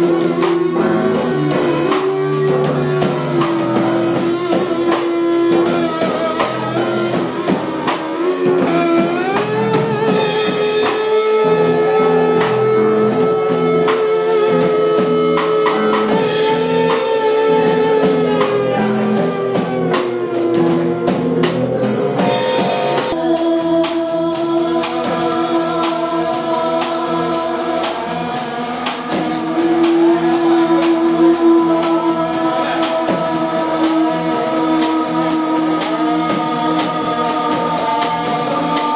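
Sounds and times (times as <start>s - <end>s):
thin high tone: 17.3s - 21.2s, 22.2s - 38.9s
droning electronic tones: 17.4s - 38.9s
fast ticking pulse: 20.6s - 38.9s.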